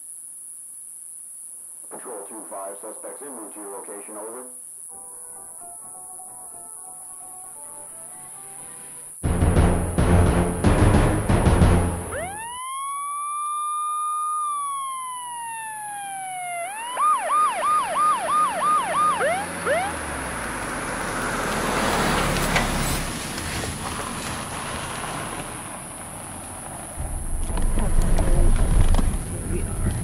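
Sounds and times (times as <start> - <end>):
police siren wailing and whooping: 12.1 - 20.4
car driving past: 18.9 - 30.0.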